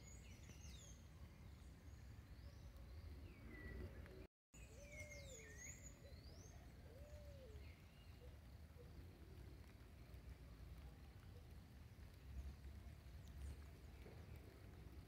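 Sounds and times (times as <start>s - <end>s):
low bird calls: 2.4s - 9.1s
birds whistling: 4.6s - 8.3s.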